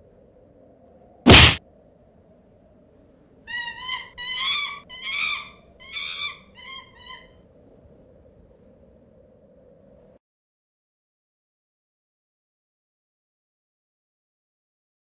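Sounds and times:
faint steady hum: 0:00.0 - 0:10.2
loud crash: 0:01.3 - 0:01.6
high-pitched animal-like cries: 0:03.5 - 0:07.3.

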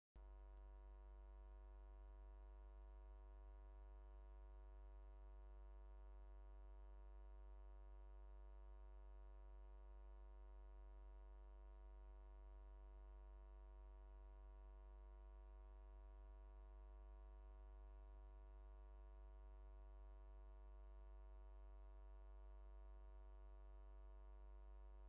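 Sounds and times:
faint steady hum: 0:00.2 - 0:25.0.

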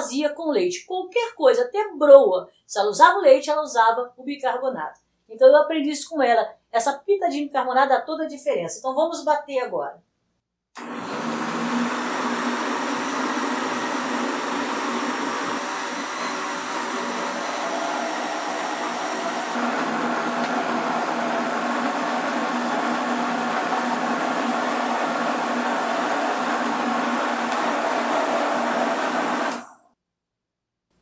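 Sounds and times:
blender running: 0:10.8 - 0:29.8.

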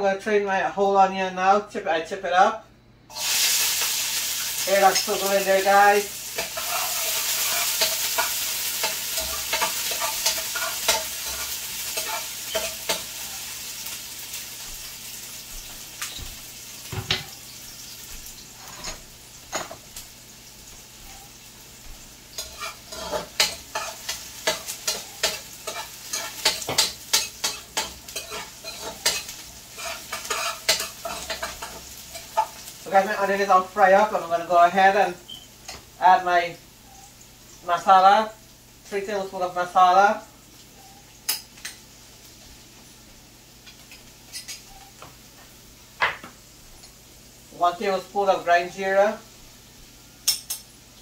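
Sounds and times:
onion sizzling in hot oil: 0:03.1 - 0:51.0
metal spoon scraping a pot: 0:06.4 - 0:13.0, 0:22.4 - 0:32.5.

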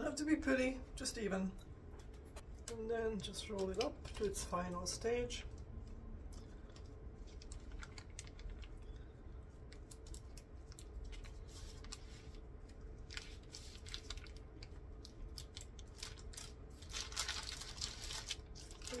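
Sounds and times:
paper crinkling: 0:05.8 - 0:19.0.

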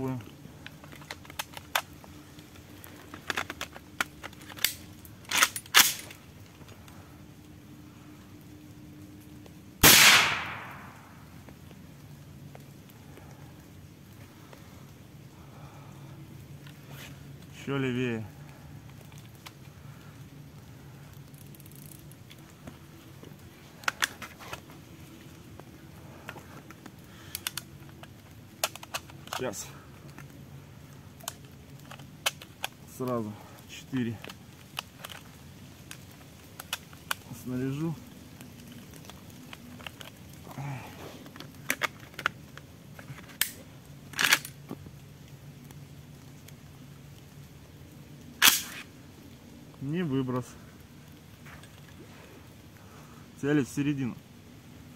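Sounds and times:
low steady background: 0:00.0 - 0:54.9
shotgun handling clicks and knocks: 0:00.6 - 0:06.7, 0:09.8 - 0:11.1, 0:21.3 - 0:24.7, 0:25.5 - 0:30.4, 0:31.2 - 0:32.8, 0:34.2 - 0:37.2, 0:41.3 - 0:45.0, 0:48.4 - 0:48.9
shotgun shells clicking into magazine: 0:27.3 - 0:29.5, 0:41.4 - 0:44.6.

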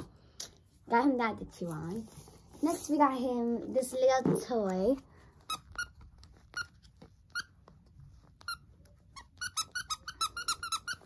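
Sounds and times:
toy squeaker squeaks: 0:05.5 - 0:07.5, 0:08.4 - 0:11.0.

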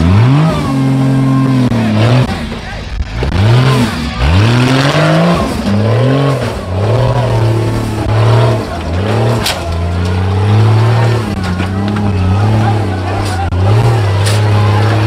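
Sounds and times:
off-road vehicle engine revving: 0:00.0 - 0:15.0.

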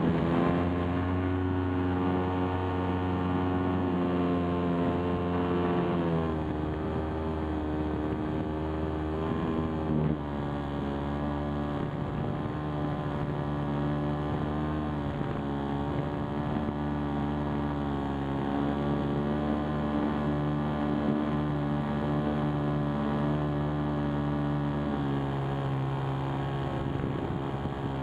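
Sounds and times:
model aeroplane motor and propeller: 0:00.0 - 0:28.0.

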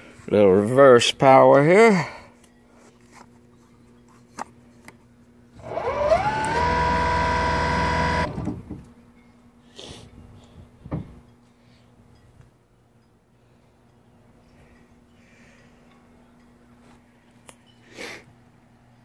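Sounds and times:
electric motor whining: 0:05.6 - 0:08.6.

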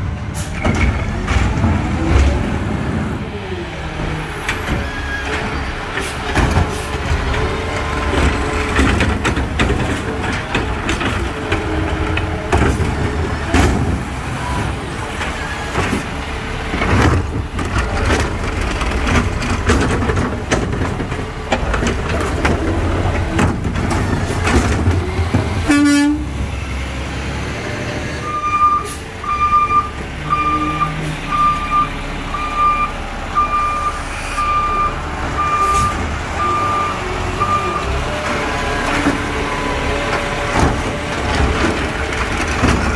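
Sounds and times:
diesel truck engine running: 0:00.0 - 0:42.9
trash cart knocking and banging: 0:00.5 - 0:03.0, 0:04.0 - 0:26.5, 0:35.2 - 0:42.9
reversing alarm beeping: 0:28.2 - 0:38.0.

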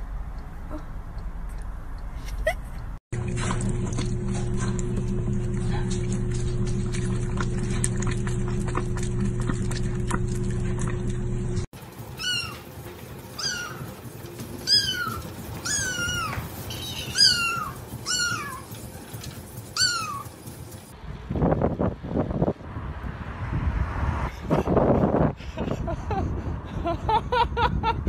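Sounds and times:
kitten meowing: 0:12.2 - 0:12.6, 0:13.4 - 0:13.8, 0:14.7 - 0:16.4, 0:17.1 - 0:18.6.

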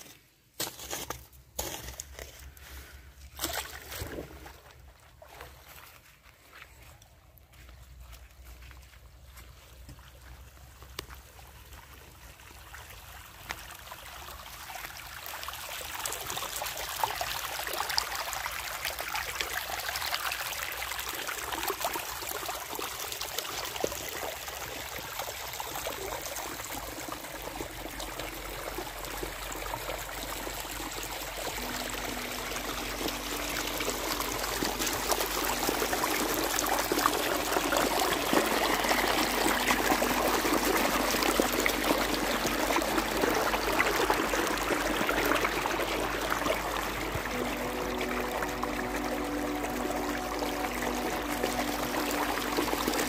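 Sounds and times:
water rushing in a channel: 0:11.4 - 0:53.0.

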